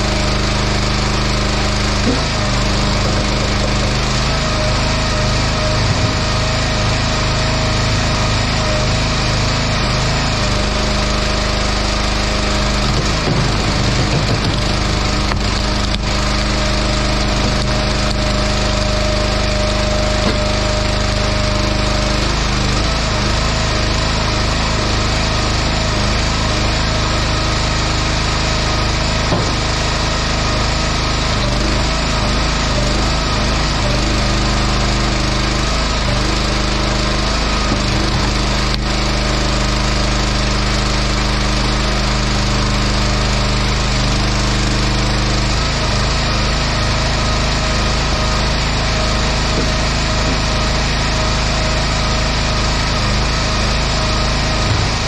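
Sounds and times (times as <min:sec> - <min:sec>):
log splitter engine running: 0:00.0 - 0:55.0
wood knocking: 0:02.0 - 0:04.2, 0:12.8 - 0:16.4, 0:29.3 - 0:29.8, 0:49.5 - 0:50.6.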